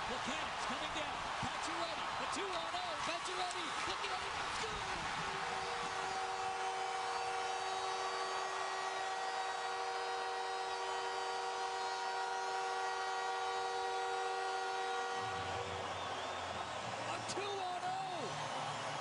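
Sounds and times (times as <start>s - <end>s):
crowd noise: 0.0s - 9.6s, 14.7s - 19.0s
goal horn chord: 5.3s - 16.3s.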